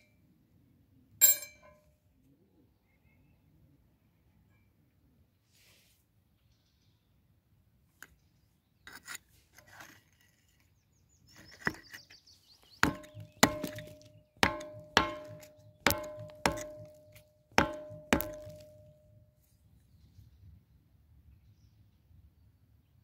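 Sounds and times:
pen tip scraping on stone: 0:08.9 - 0:10.7, 0:11.3 - 0:12.2
pen tip knocking on masonry: 0:11.4 - 0:12.1, 0:12.8 - 0:18.9.

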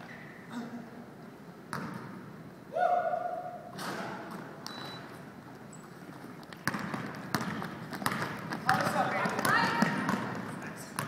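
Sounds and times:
basketball bouncing: 0:01.7 - 0:02.1, 0:06.4 - 0:11.0
shoes squeaking on court: 0:03.8 - 0:11.0.

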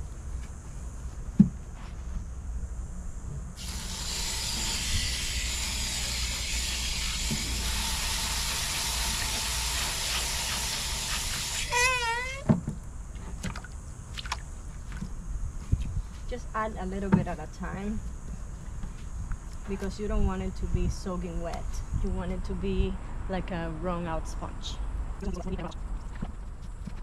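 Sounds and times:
hose nozzle spraying water: 0:03.6 - 0:12.4.

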